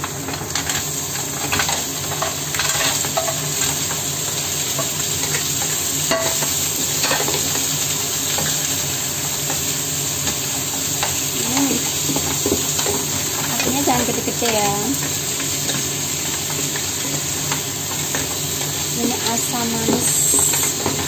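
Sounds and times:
onions sizzling: 0.0s - 21.0s.

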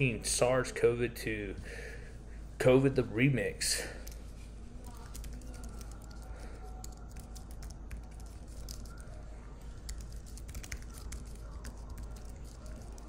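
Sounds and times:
steady low hum: 0.0s - 13.0s
keyboard typing clicks: 4.8s - 9.0s.

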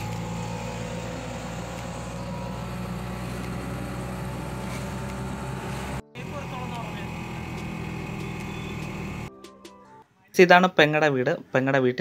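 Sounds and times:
road noise: 0.0s - 9.3s
vehicle engine hum: 0.0s - 9.3s.

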